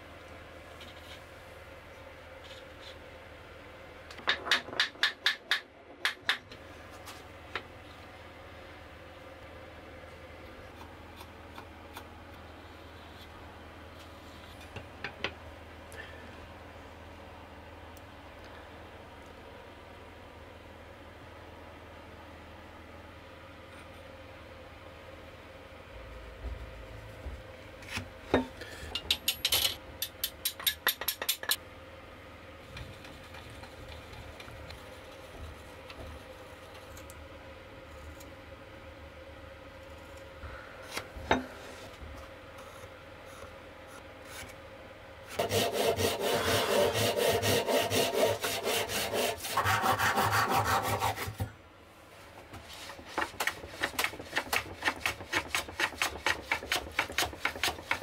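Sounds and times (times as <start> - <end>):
hand saw cutting wood: 45.4 - 51.4.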